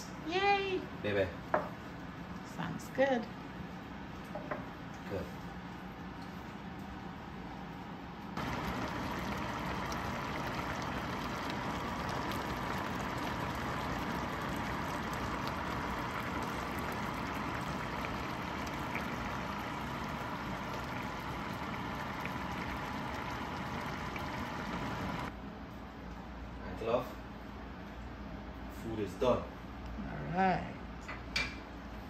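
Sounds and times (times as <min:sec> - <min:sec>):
rice simmering and bubbling: 0:08.4 - 0:25.3.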